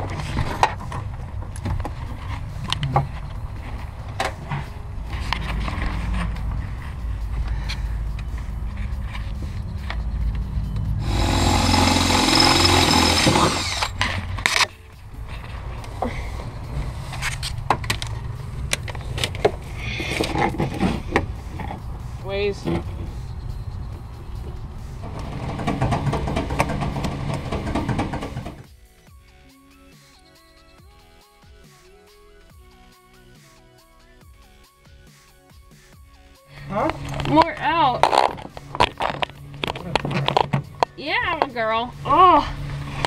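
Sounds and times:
low rumble: 0:00.0 - 0:28.6
hands handling hoses and wiring: 0:13.7 - 0:16.1, 0:16.8 - 0:21.9, 0:36.7 - 0:41.6.

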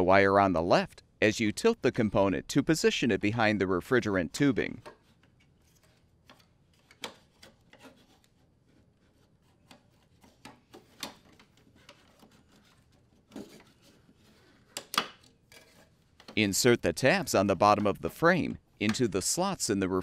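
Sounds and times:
plastic rubbing and scraping on metal: 0:04.6 - 0:16.4.

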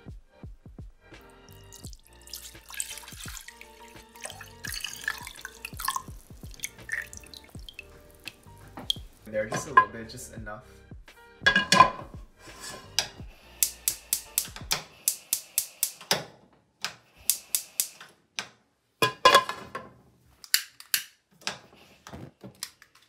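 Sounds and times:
gas stove igniter clicking: 0:13.0 - 0:16.2, 0:17.2 - 0:18.1.

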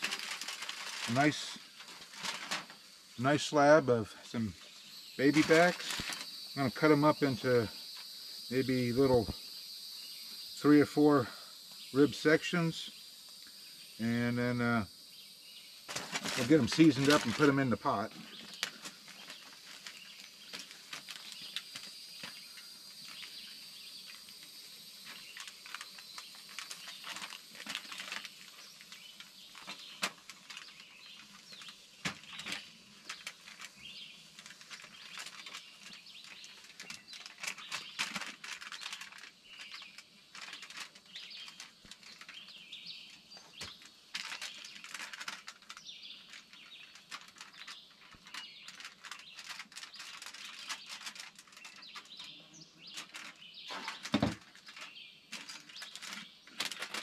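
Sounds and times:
birds chirping: 0:02.9 - 0:38.0.

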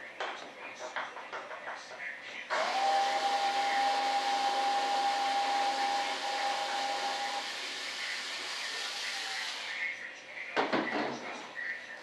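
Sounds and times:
fan heater blower whine: 0:02.4 - 0:10.5.

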